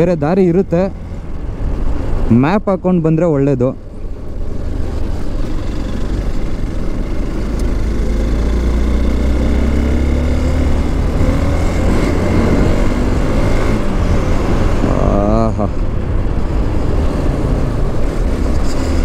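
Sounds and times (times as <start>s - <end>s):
motorcycle engine accelerating: 4.4s - 19.0s.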